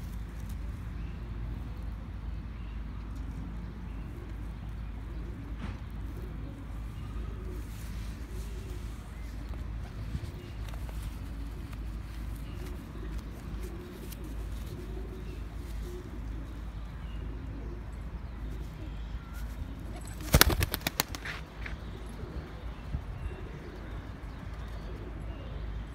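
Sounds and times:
pigeons cooing faintly: 2.9 - 25.9
pigeon wing claps: 20.0 - 21.4.

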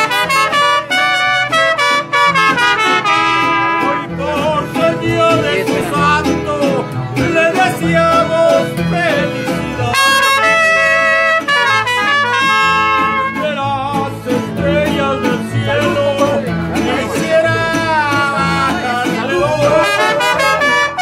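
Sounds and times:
trumpets playing: 0.0 - 4.2, 9.2 - 13.6, 19.6 - 21.0
bass line: 0.0 - 21.0
strummed guitars: 0.0 - 21.0.

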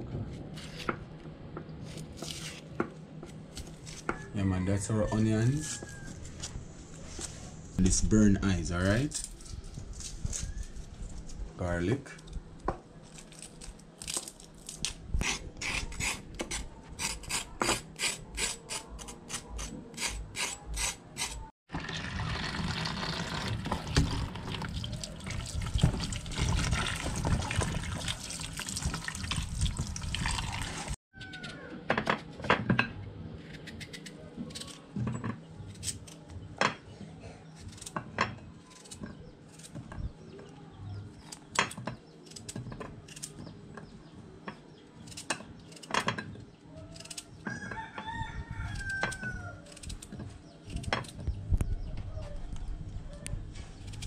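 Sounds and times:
tap water running into basin: 21.7 - 31.0.

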